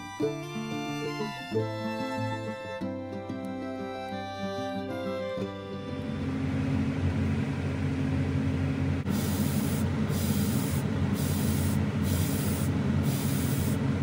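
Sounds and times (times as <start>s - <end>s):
violin music: 0.0s - 6.6s
steady low hum: 4.9s - 14.0s
airbrush spraying hiss: 9.1s - 13.9s.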